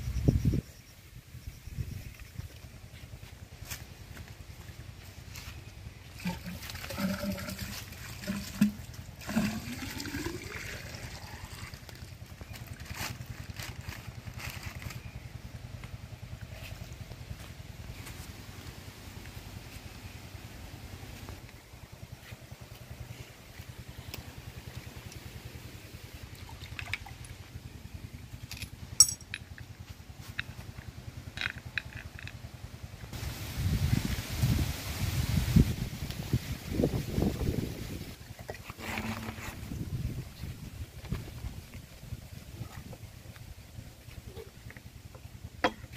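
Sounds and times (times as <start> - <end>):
low pulsing engine hum: 0.0 - 45.9
low steady rumble: 0.0 - 45.9
water gurgling into pipe: 6.2 - 12.0
metal parts clinking and scraping: 28.5 - 29.6
sharp metallic clink: 29.0 - 29.4.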